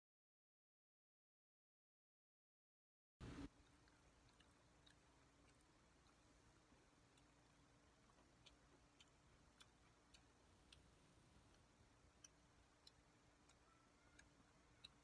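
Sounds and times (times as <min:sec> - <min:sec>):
faint steady hum: 0:03.2 - 0:15.0.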